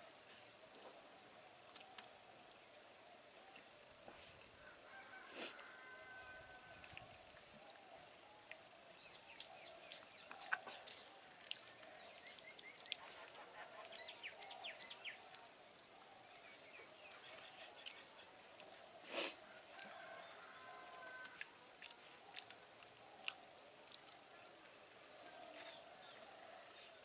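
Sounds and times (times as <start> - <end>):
soft clicks of hand mixing rice: 0.0 - 14.0, 19.6 - 27.0.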